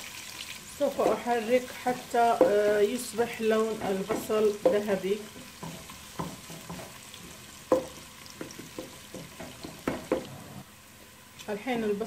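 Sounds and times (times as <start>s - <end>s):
onions sizzling in oil: 0.0s - 12.0s
spatula knocking and scraping pot: 1.9s - 10.6s.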